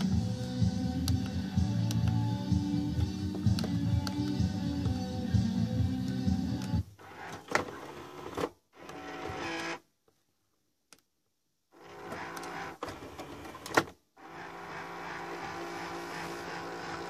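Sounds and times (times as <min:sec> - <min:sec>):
cd changer motor whirring: 0:11.9 - 0:17.0.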